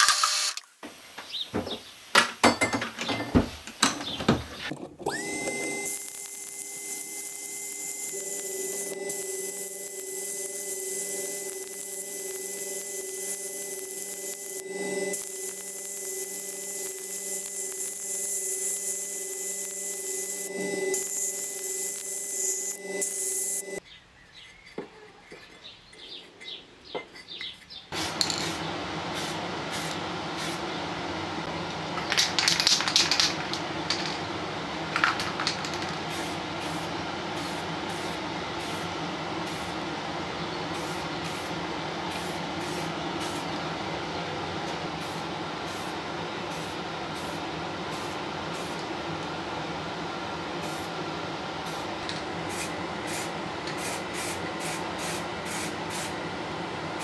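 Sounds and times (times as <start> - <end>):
paint spraying hiss: 28.0 - 30.6, 40.7 - 41.5, 42.1 - 43.5, 52.5 - 56.1.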